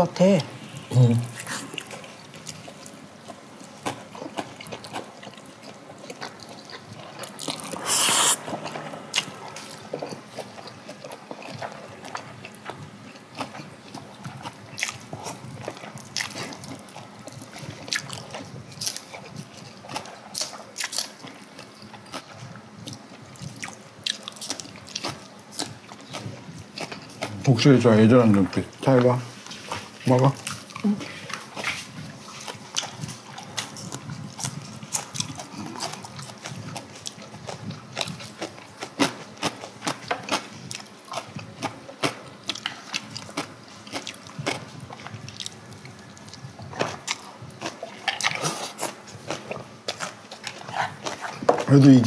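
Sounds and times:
noodles being slurped: 0:07.0 - 0:10.9.

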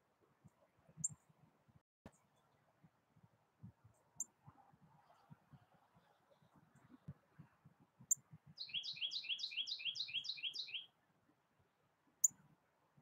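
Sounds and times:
songbird singing: 0:08.1 - 0:11.0.

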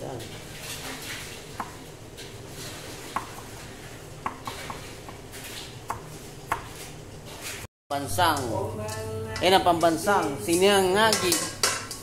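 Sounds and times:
knife chopping on cutting board: 0:01.6 - 0:01.8, 0:04.2 - 0:05.2.

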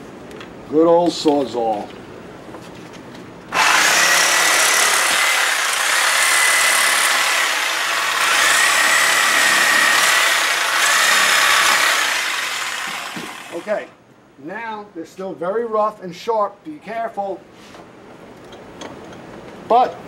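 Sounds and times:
reciprocating saw cutting: 0:03.5 - 0:13.9.

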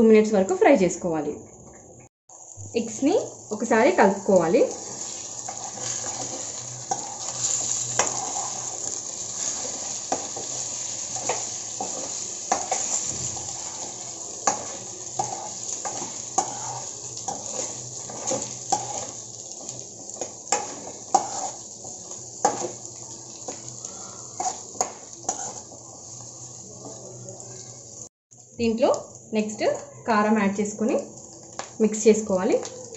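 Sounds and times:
eggs and onions frying: 0:02.3 - 0:32.9
metal spoon scraping a pan: 0:04.7 - 0:26.2.

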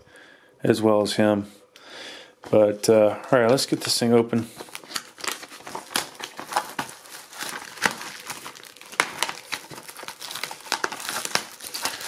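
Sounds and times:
plastic shrink wrap crinkling: 0:03.5 - 0:12.0.

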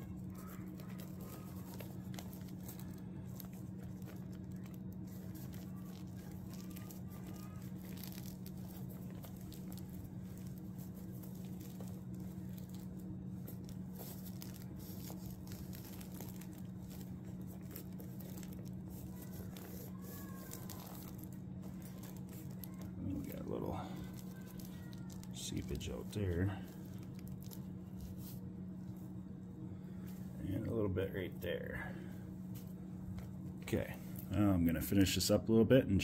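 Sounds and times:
tent fabric rustling: 0:00.0 - 0:28.4
steady low hum: 0:00.0 - 0:36.0.

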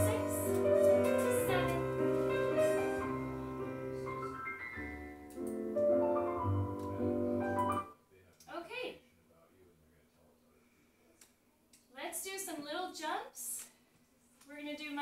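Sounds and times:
piano chords: 0:00.0 - 0:08.0.

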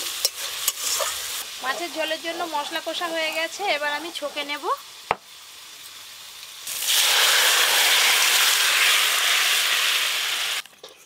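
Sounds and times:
liquid poured into hot wok sizzling: 0:02.7 - 0:10.7.

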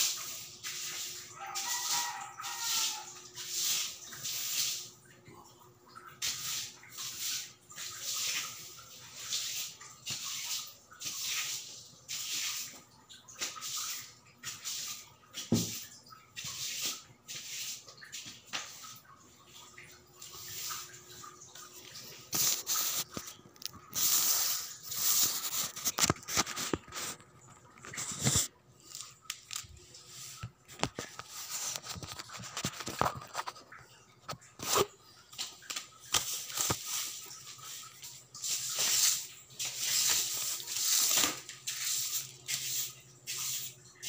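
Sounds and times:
hand brush swishing: 0:20.2 - 0:21.2, 0:22.3 - 0:23.3, 0:24.0 - 0:25.9, 0:36.2 - 0:43.7.

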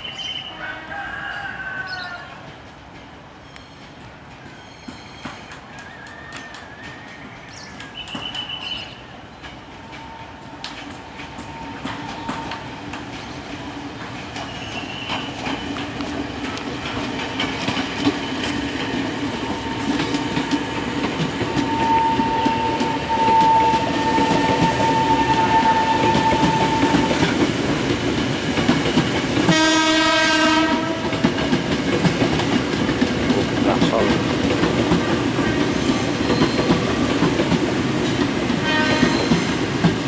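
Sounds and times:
train running noise: 0:00.0 - 0:40.0
train horn blast: 0:21.6 - 0:27.3, 0:29.5 - 0:31.3, 0:38.6 - 0:39.3.

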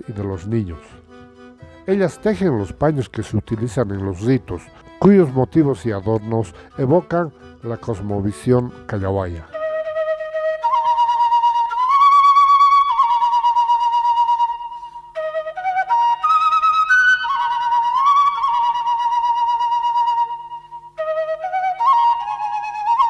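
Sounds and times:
solo flute slow melody: 0:09.4 - 0:23.0.

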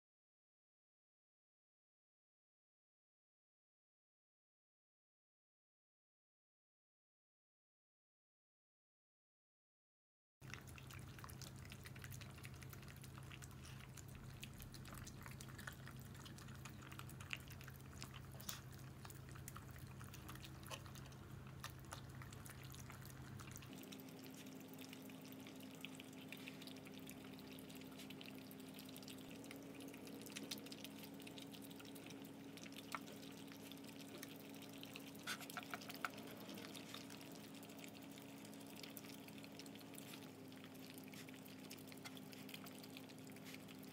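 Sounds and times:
dogs licking and chewing: 0:10.4 - 0:43.9.

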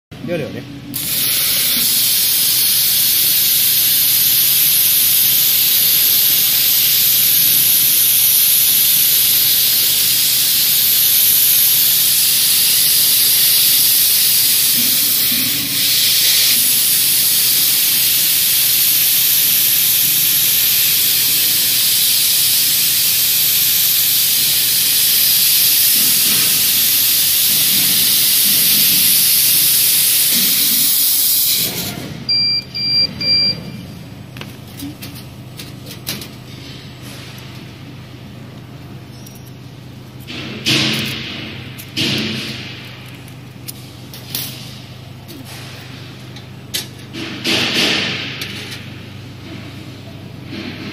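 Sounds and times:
laser cutter gas hiss: 0:00.9 - 0:32.2.

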